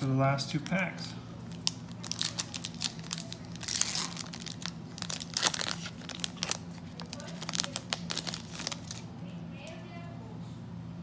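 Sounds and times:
foil wrapper crinkling and tearing: 0:01.4 - 0:09.1.

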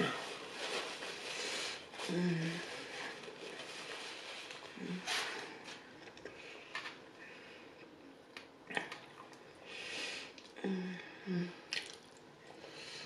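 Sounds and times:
person humming mm: 0:02.0 - 0:02.8, 0:10.6 - 0:11.7.

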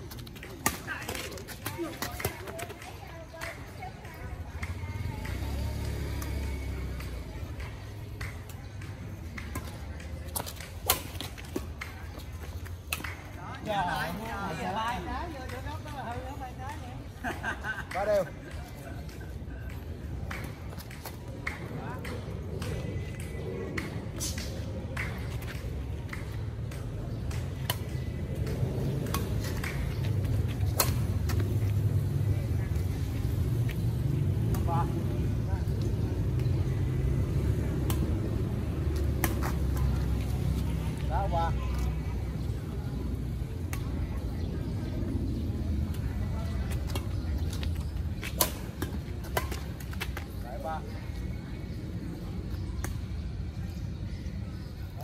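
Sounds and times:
low road traffic rumble: 0:00.0 - 0:55.0
rackets hitting shuttlecock: 0:06.2 - 0:13.4, 0:20.2 - 0:32.9, 0:33.9 - 0:40.6, 0:45.9 - 0:50.4.

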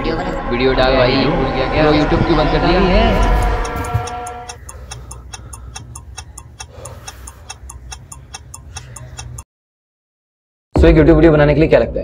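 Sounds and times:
clock ticking fast: 0:03.0 - 0:09.5.

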